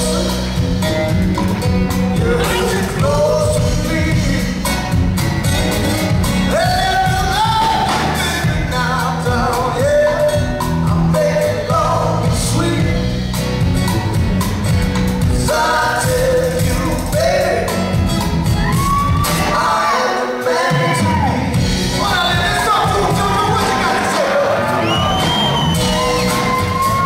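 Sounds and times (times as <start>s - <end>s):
man singing: 0.0s - 1.1s, 1.9s - 5.0s, 6.3s - 14.2s, 15.2s - 18.0s, 19.2s - 25.4s
acoustic guitars: 0.0s - 27.0s
drums: 0.0s - 27.0s.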